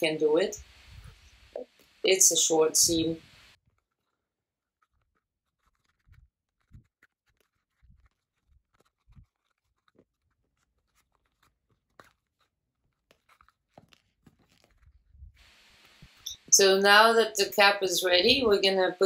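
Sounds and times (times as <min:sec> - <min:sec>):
soft taps and rustles of leather: 0:05.6 - 0:16.2.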